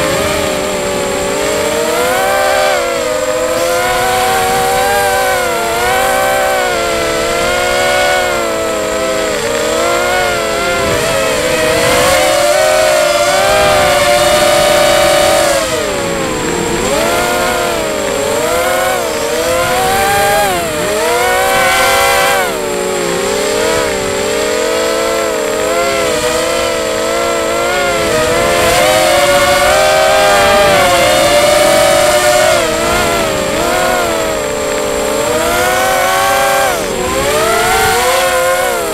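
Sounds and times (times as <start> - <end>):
quadcopter motors whining: 0.0 - 38.9.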